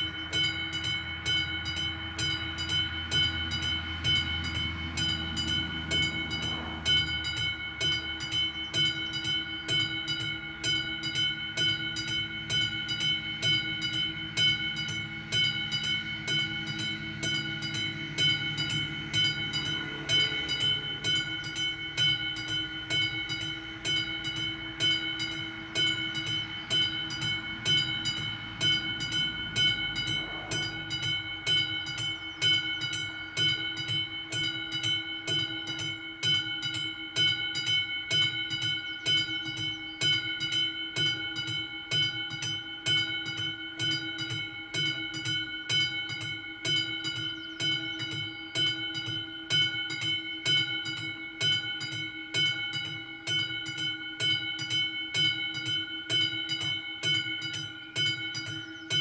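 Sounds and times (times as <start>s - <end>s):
passing train rumble: 0.0s - 35.8s
level-crossing warning bell ringing: 0.0s - 59.0s.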